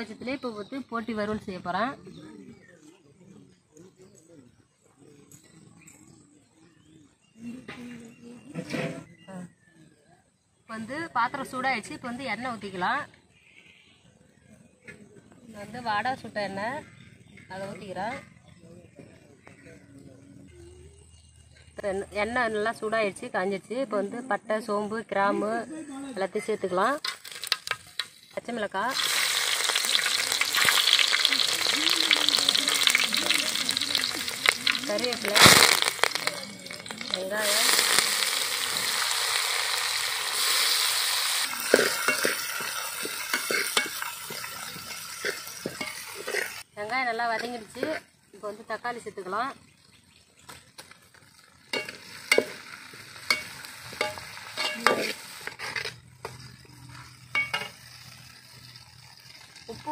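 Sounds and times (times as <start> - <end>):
spices sizzling in hot oil: 26.4 - 59.9
metal ladle clinking on pot: 51.8 - 55.2, 57.3 - 57.8.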